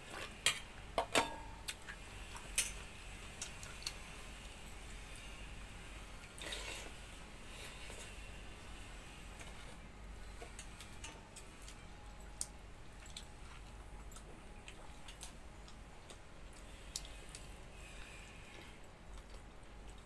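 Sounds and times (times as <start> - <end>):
faint low hum: 0.0 - 20.0
soft chewing: 9.4 - 20.0.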